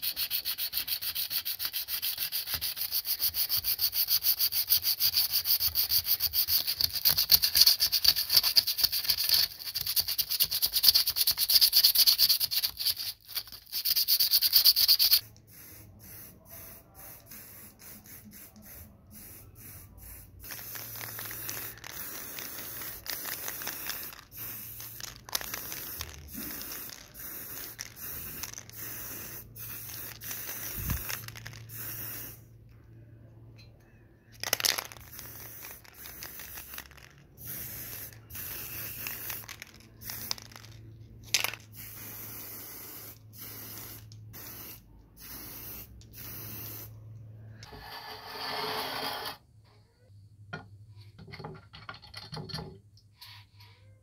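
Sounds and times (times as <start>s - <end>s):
sandpaper rubbing on metal: 0.0s - 15.2s
aerosol spray can hissing: 0.0s - 32.4s, 34.5s - 40.8s, 41.4s - 46.9s.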